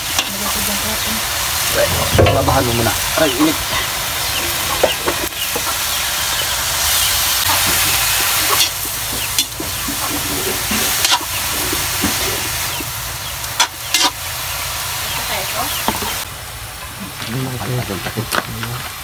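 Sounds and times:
mushrooms sizzling in a wok: 0.0s - 19.0s
metal spatula scraping a pan: 9.4s - 12.4s, 13.6s - 14.2s.

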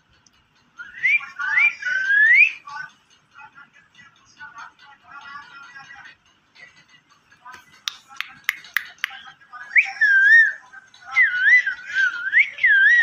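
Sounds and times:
parakeet beak clicks: 7.8s - 9.2s.

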